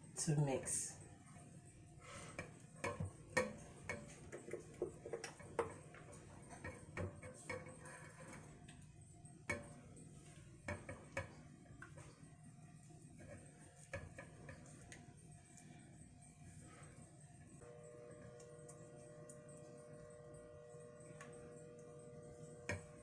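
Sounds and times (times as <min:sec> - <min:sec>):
spatula scraping a saucepan: 0:02.0 - 0:12.3, 0:13.0 - 0:15.0.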